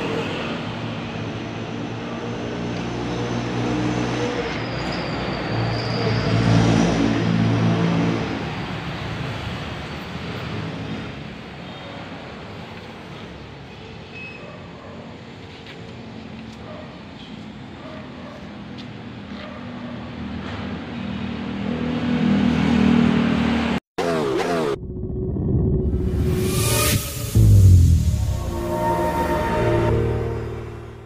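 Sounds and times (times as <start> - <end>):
background traffic noise: 0.0 - 23.8
vehicle engine passing by: 25.8 - 30.6.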